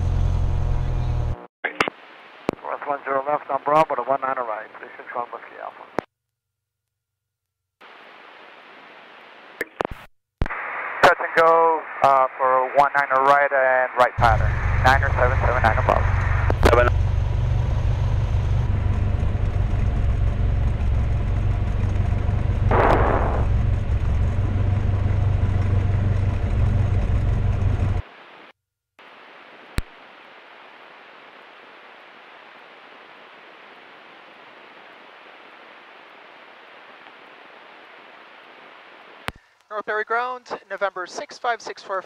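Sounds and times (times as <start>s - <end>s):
propeller plane engine drone: 0.0s - 1.4s, 14.2s - 28.0s
faint steady hiss: 1.7s - 6.1s, 7.8s - 16.9s, 28.0s - 42.0s.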